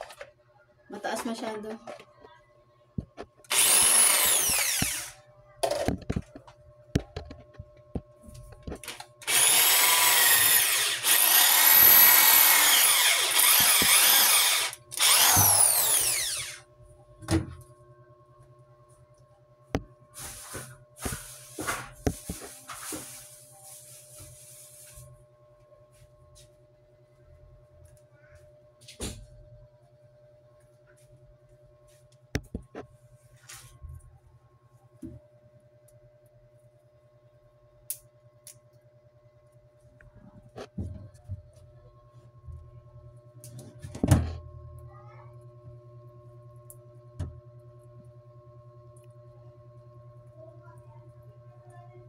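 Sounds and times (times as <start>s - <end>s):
electric drill boring into wall: 3.5s - 5.2s, 9.2s - 16.6s.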